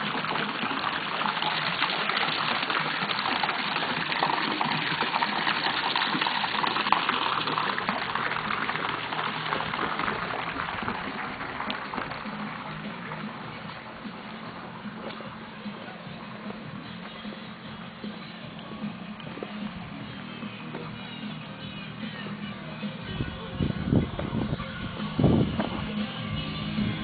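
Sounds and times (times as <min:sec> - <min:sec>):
running water rushing: 0:00.0 - 0:27.0.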